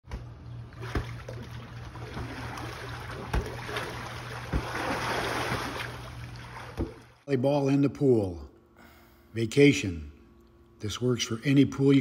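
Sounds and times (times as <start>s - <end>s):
pool water splashing: 0.7s - 7.3s.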